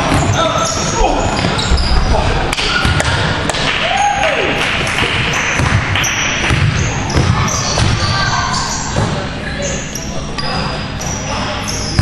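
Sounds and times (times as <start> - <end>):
sneaker squeaking on court floor: 0.0 - 3.4, 5.1 - 12.0
echoing chatter: 0.0 - 12.0
basketball bouncing: 1.4 - 3.7, 4.8 - 8.3.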